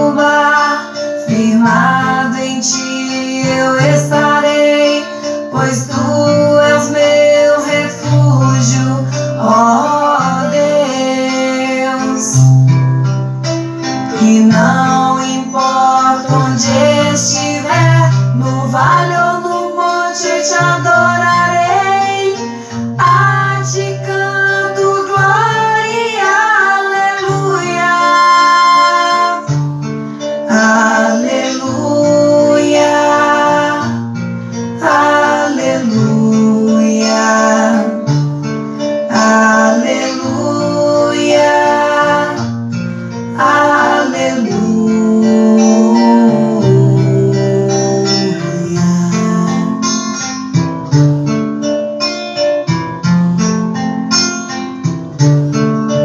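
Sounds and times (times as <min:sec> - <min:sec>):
two women singing: 0:00.0 - 0:12.8, 0:14.1 - 0:29.6, 0:30.3 - 0:50.2
acoustic guitar: 0:00.0 - 0:56.0.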